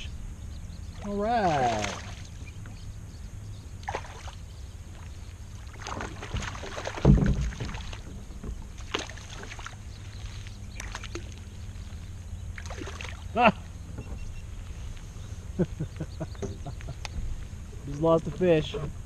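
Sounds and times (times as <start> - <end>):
low steady rumble: 0.0 - 19.0
fish splashing in water: 1.0 - 2.4, 3.8 - 11.7, 12.5 - 13.4
small water slaps and clicks: 1.0 - 2.8, 3.8 - 11.5, 12.5 - 13.3
loud splash: 1.4 - 2.3, 5.7 - 8.0.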